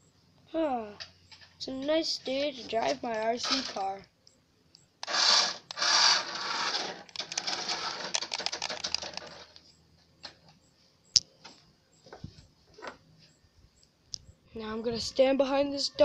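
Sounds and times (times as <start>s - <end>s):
toy car motor and wheel noise: 3.1s - 4.0s, 5.0s - 9.6s
plastic wheels rattling: 3.3s - 3.9s, 5.0s - 9.5s.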